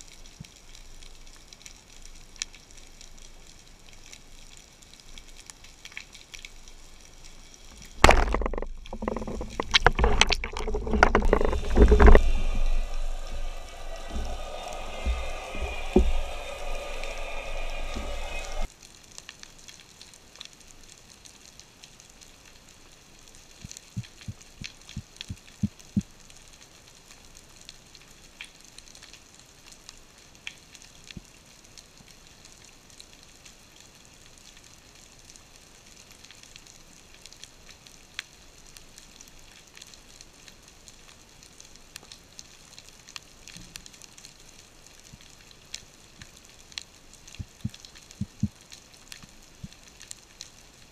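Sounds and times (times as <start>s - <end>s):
fine underwater crackling: 0.0s - 18.6s, 30.4s - 50.9s
water rushing: 8.0s - 18.7s.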